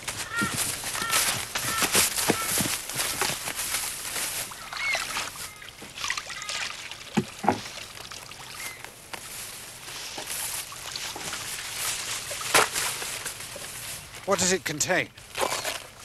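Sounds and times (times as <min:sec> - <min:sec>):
rustling in long grass: 0:00.0 - 0:06.2, 0:07.3 - 0:14.4
sharp wooden knocks: 0:07.2 - 0:07.7.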